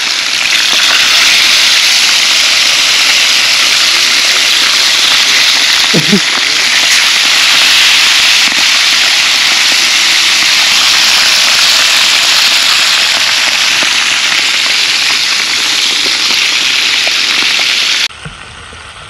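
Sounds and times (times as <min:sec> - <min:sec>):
fish frying in hot oil: 0:00.0 - 0:18.1.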